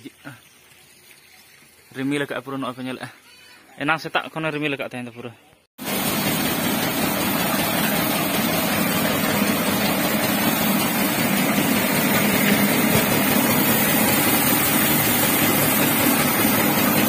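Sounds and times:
rice huller machine running: 5.8s - 17.0s.

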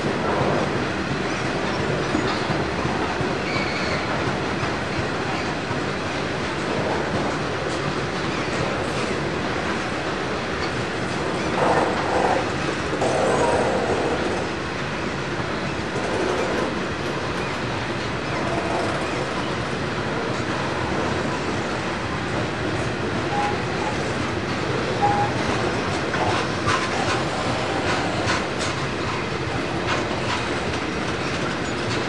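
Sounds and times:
wheel squeals: 3.4s - 4.1s.

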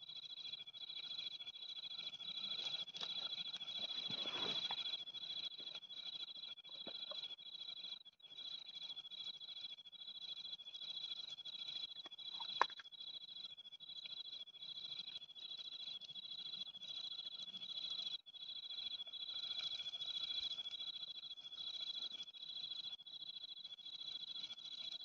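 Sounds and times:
insect chirping: 0.0s - 25.0s
insects trilling: 0.0s - 25.0s.

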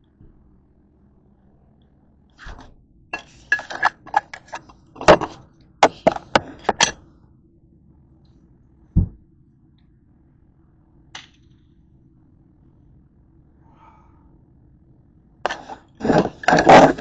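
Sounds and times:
dishes and utensils clattering: 3.2s - 7.0s, 15.5s - 17.0s.

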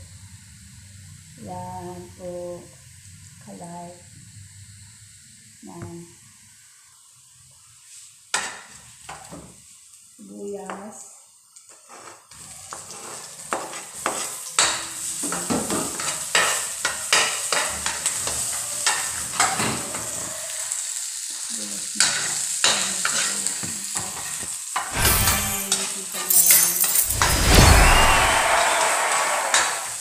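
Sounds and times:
vegetables sizzling in oil: 0.0s - 30.0s
utensil scraping a pan: 11.7s - 14.4s, 23.0s - 23.5s.

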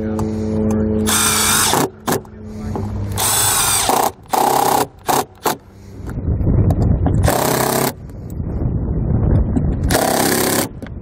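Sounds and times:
low rumble: 0.0s - 10.0s
cordless drill driving screws: 1.1s - 1.9s, 3.2s - 5.6s.

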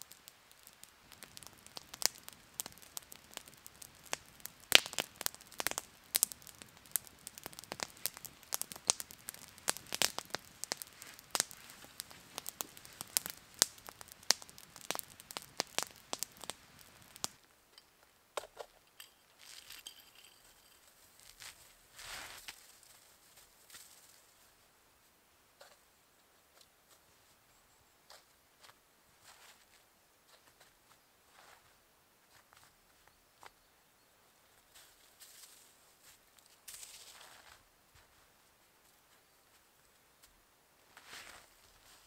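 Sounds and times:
burning wood popping: 0.0s - 24.2s
campfire crackling: 0.0s - 24.5s
hands scraping snow: 21.2s - 22.6s, 41.0s - 42.0s.

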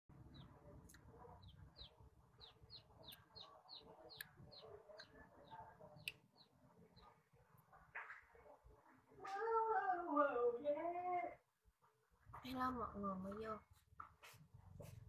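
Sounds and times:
bird peeping: 0.2s - 7.2s.

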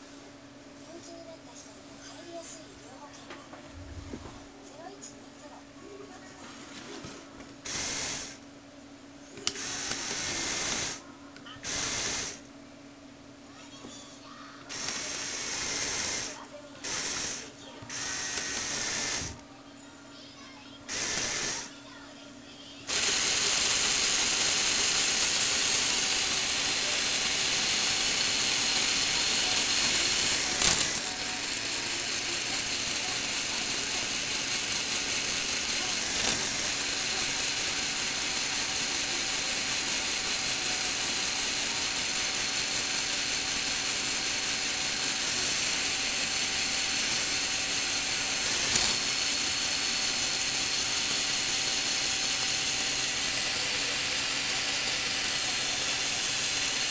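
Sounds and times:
plastic gearbox whirring: 7.6s - 8.4s, 9.4s - 11.0s, 11.6s - 12.4s, 14.6s - 19.4s, 20.9s - 21.7s, 22.9s - 56.9s.

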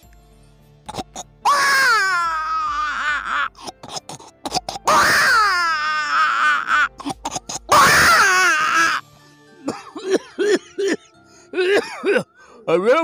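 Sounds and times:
man imitating crying baby: 0.9s - 9.0s.

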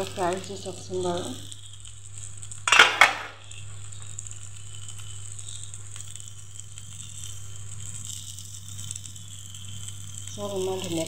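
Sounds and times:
vegetables sizzling in oil: 0.0s - 11.0s
double clatter: 2.7s - 3.4s.

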